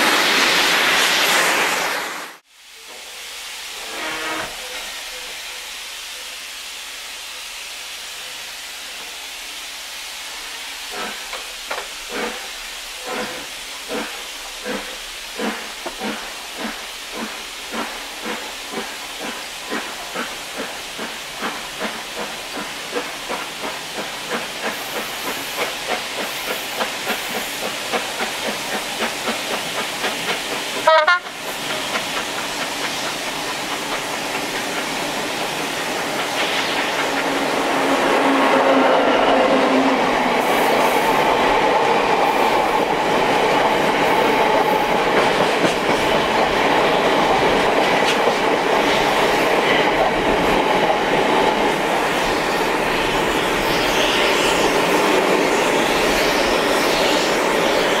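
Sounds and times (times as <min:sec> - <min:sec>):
steam hissing from drain cocks: 0:02.7 - 0:41.3
steam locomotive exhaust beats: 0:08.7 - 0:58.0.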